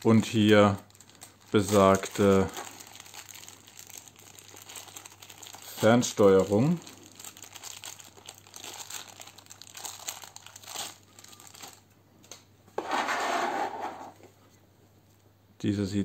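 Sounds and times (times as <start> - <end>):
plastic bag crinkling: 0.0 - 11.9.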